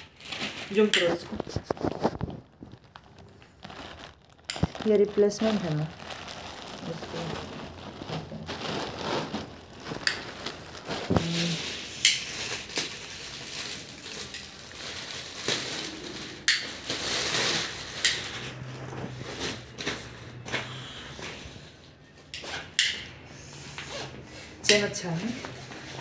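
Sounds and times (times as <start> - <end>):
plastic packaging crinkling: 0.0 - 20.4.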